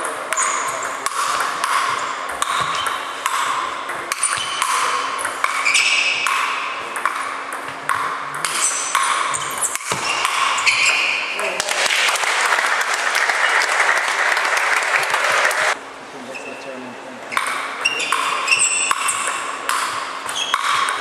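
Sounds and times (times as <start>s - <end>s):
ping pong ball clicks: 1.0s - 5.6s, 6.2s - 10.5s.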